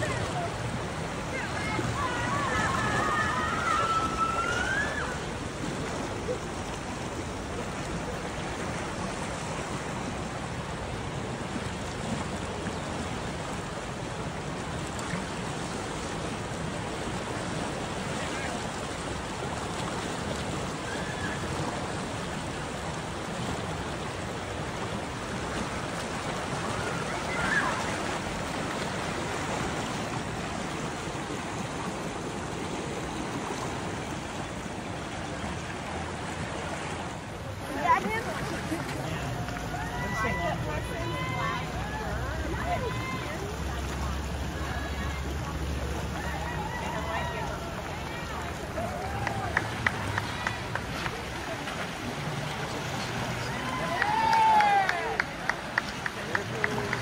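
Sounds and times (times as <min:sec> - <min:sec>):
rapids rushing: 0:00.0 - 0:57.0.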